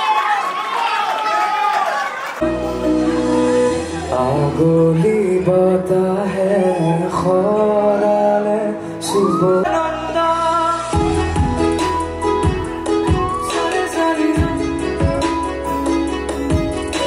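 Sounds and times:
acoustic guitar: 0:02.4 - 0:17.0
man singing into microphone: 0:04.0 - 0:11.4, 0:13.1 - 0:15.5.

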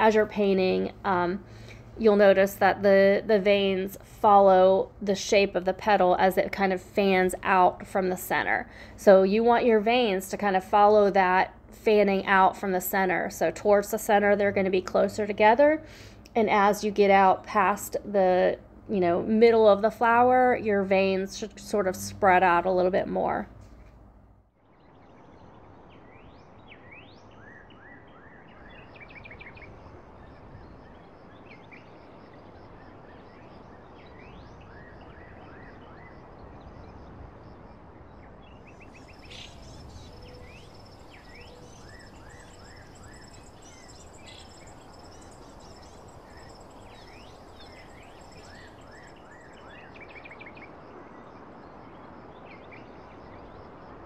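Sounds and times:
steady background hiss: 0:28.4 - 0:54.0
small birds chirping: 0:38.4 - 0:50.8
thin high steady tone: 0:39.0 - 0:49.6.

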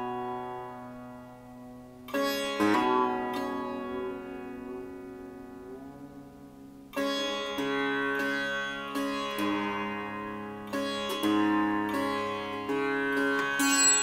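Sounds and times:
sitar plucked notes: 0:00.0 - 0:14.0.

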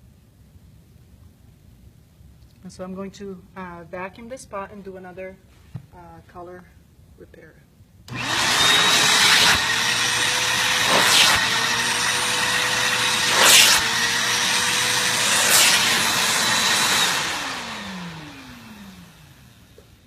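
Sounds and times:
vacuum cleaner running: 0:08.1 - 0:20.0.

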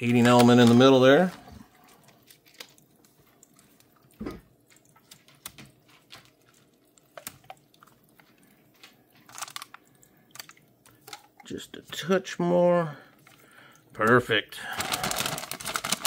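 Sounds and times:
plastic packaging crinkling: 0:00.0 - 0:11.3, 0:14.0 - 0:16.0
packaging rustle: 0:00.1 - 0:03.2, 0:08.2 - 0:11.3, 0:14.6 - 0:16.0.

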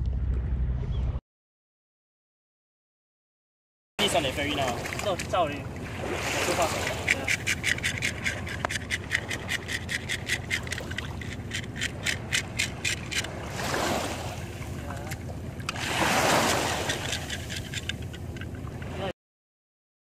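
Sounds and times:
fish scaler scraping scales: 0:04.0 - 0:19.0
splashing water: 0:04.0 - 0:19.1.

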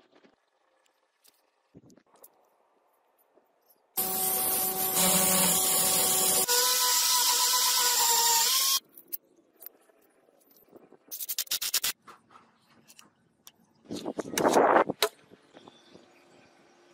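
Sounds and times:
rotary tool grinding metal: 0:04.0 - 0:08.8.

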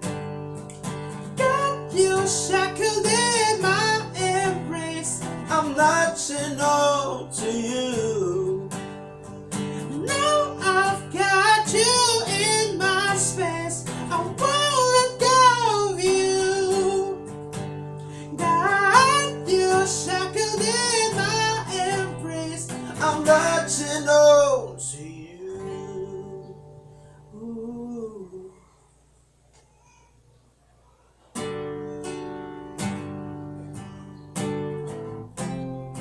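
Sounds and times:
strummed acoustic guitar: 0:00.0 - 0:28.2, 0:31.3 - 0:36.0
man singing: 0:01.2 - 0:17.4, 0:18.1 - 0:28.7.

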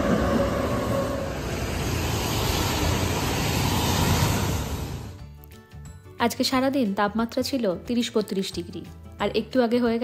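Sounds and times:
tram motor whine: 0:00.0 - 0:05.2.

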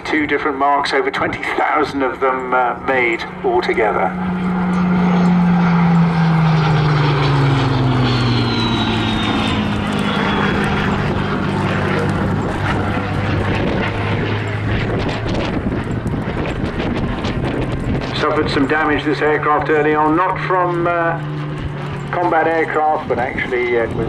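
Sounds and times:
propeller aircraft engine droning: 0:00.0 - 0:24.0.

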